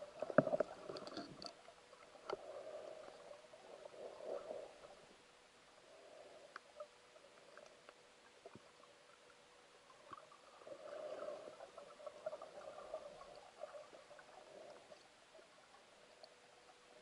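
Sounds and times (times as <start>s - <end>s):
faint steady hum: 0.0s - 17.0s
muffled underwater clicks and crackling: 0.0s - 17.0s.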